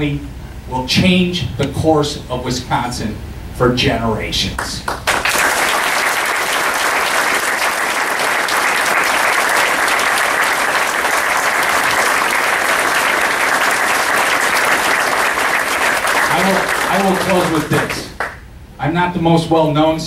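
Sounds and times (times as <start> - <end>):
audience applauding: 4.9 - 18.4.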